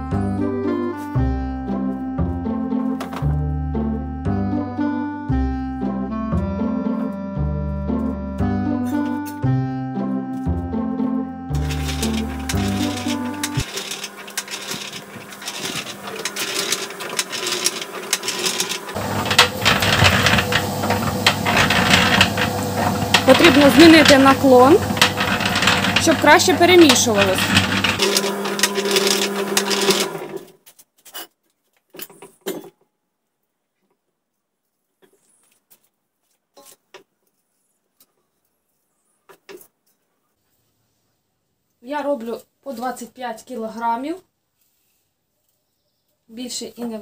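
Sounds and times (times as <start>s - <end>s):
low motor hum: 10.5s - 29.8s
mixer drum rattling clatter: 11.6s - 30.3s.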